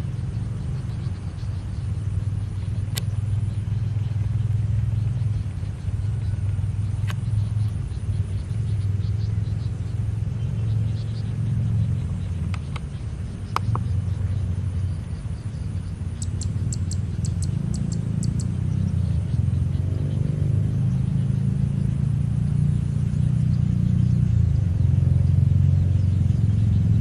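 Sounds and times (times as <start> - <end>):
low steady rumble: 0.0 - 27.0
faint high ticks: 0.2 - 4.4, 5.0 - 10.0, 11.9 - 14.4, 16.2 - 19.4
sharp clicks: 2.9 - 3.2.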